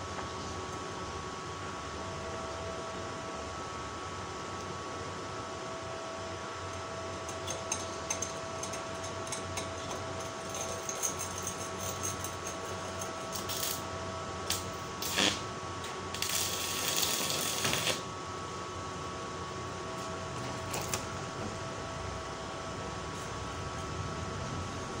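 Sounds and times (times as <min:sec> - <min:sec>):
electrical hum: 0:00.0 - 0:25.0
welding arc crackling and hissing: 0:13.2 - 0:18.1
arc strikes crackling: 0:16.1 - 0:18.0.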